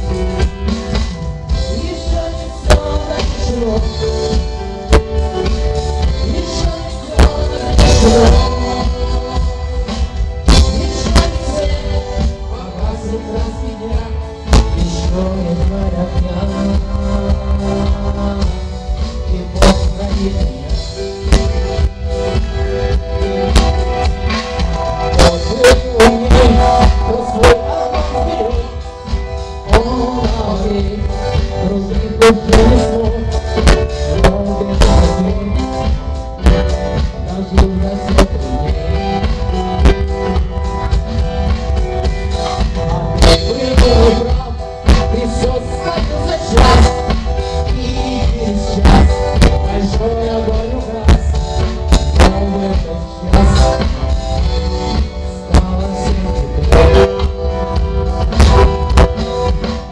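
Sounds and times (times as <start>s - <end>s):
bass guitar: 0.0s - 59.9s
electric guitar: 0.0s - 59.9s
keyboard: 0.0s - 59.9s
live rock band playing: 0.0s - 59.9s
drum and cymbal hits: 13.4s - 59.9s.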